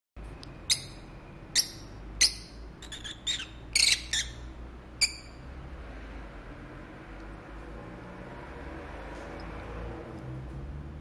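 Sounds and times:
lovebirds chirping: 0.4s - 5.4s.

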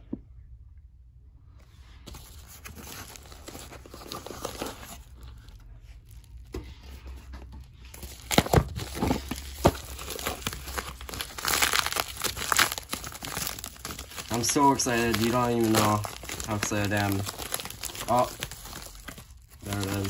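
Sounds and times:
paper packaging crinkling: 2.1s - 20.0s
paper tearing: 8.2s - 20.0s.

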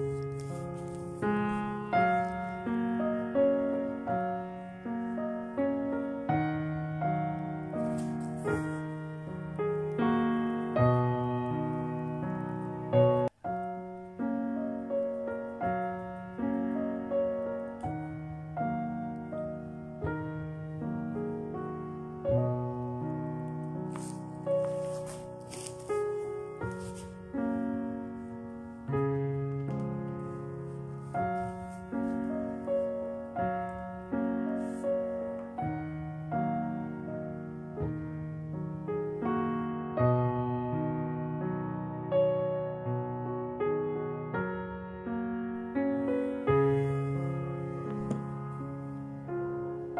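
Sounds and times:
slow piano chords: 0.0s - 49.9s.

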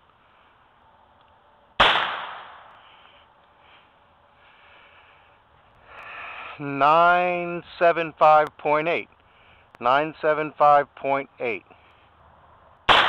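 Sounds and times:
revolver gunshot: 1.8s - 2.7s.

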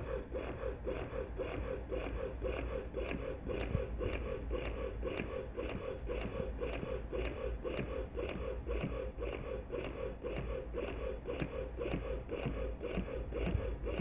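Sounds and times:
electric breast pump running: 0.0s - 14.0s.

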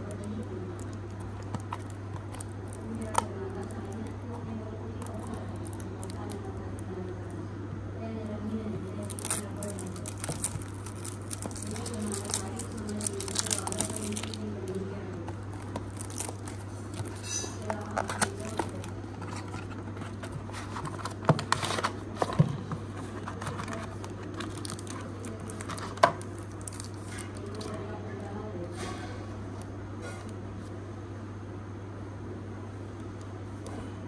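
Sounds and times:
cellophane crinkling and tearing: 0.0s - 4.4s, 5.0s - 7.4s, 8.4s - 22.4s, 23.0s - 27.8s
steady low hum: 0.0s - 34.0s
box and tray being handled: 8.8s - 26.2s.

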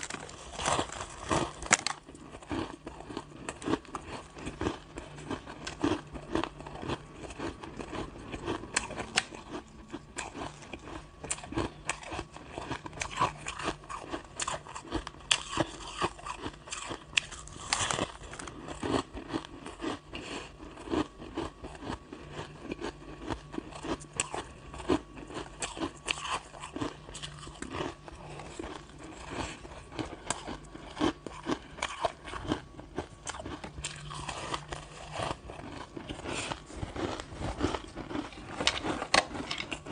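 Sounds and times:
ice being chewed: 0.0s - 39.9s.

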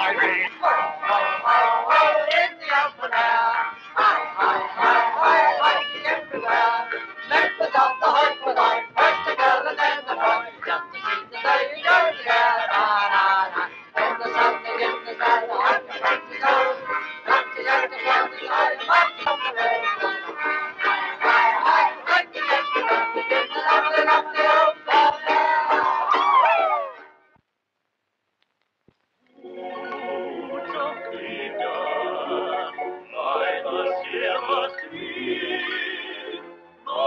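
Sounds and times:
men singing: 0.0s - 20.1s, 21.2s - 26.0s, 30.6s - 37.0s
squeeze box playing a lively tune: 0.0s - 26.5s.

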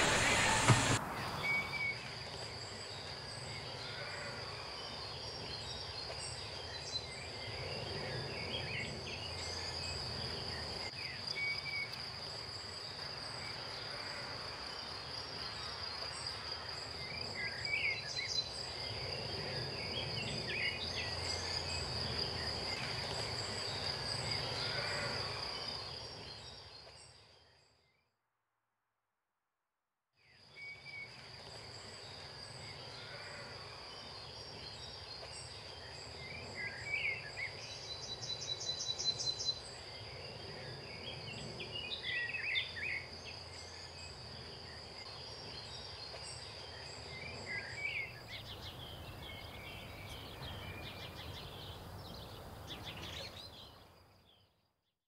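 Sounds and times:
quick high pulses: 0.0s - 1.8s
birds chirping: 0.0s - 2.0s, 47.6s - 53.9s.

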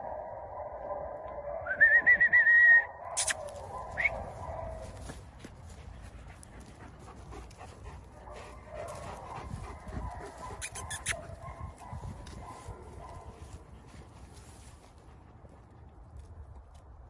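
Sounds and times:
dog whining: 10.6s - 11.2s.

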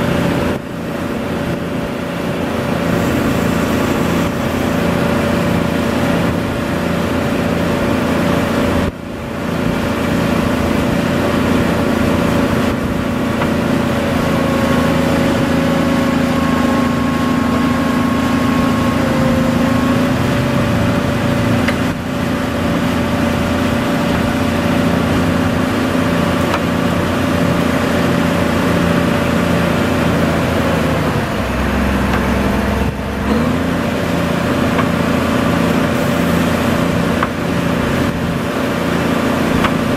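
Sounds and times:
diesel engine running: 0.0s - 39.9s
hydraulics moving blade: 2.6s - 6.4s, 30.0s - 38.2s.

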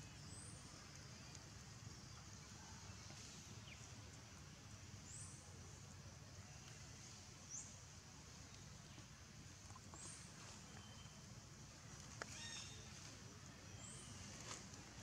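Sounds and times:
faint high-pitched chirps: 9.9s - 11.3s.

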